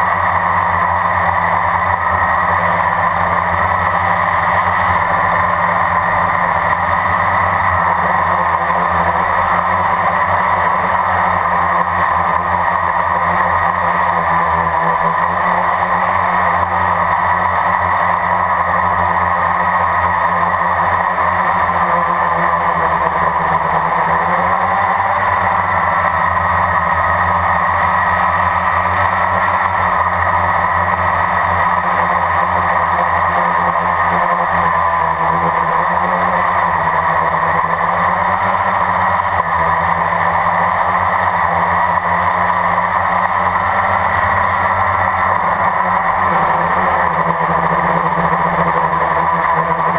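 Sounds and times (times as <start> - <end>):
drone propellers whining: 0.0 - 49.9.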